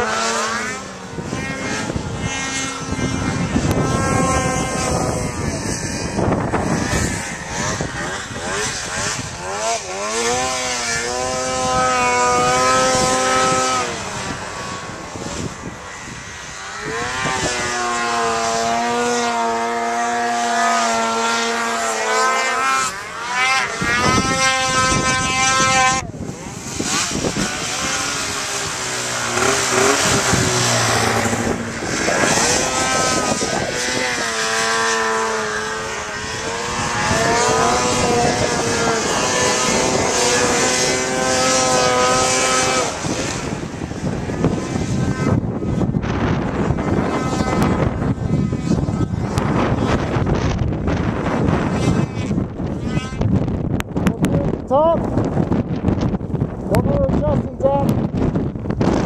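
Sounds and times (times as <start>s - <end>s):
snowmobile engine revving: 0.0s - 59.0s.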